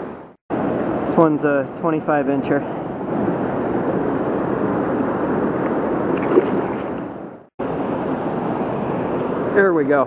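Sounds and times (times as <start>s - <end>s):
river current rushing: 0.6s - 10.0s
splash in water: 6.2s - 7.0s.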